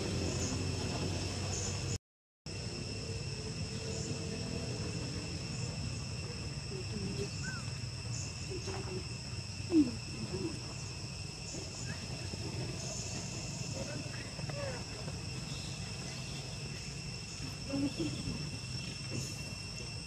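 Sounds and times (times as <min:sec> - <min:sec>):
insect chirring: 0:01.4 - 0:20.0
low animal calls: 0:06.7 - 0:19.5.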